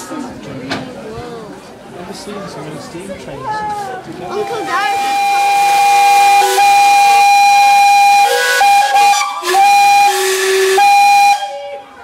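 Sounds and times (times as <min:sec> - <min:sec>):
steam locomotive whistles: 0:04.3 - 0:12.0.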